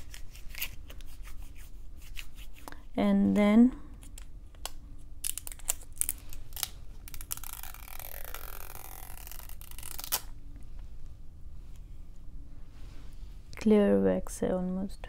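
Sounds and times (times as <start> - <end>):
plastic wax strip crinkling: 4.0 - 10.4
wax strip layers tearing apart: 4.0 - 10.4.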